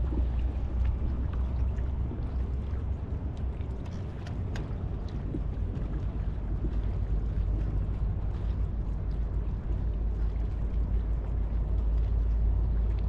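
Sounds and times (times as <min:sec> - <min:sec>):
water lapping against kayak hull: 0:00.0 - 0:13.0
wind rumble on microphone: 0:00.0 - 0:13.0
light ticks: 0:03.4 - 0:06.0.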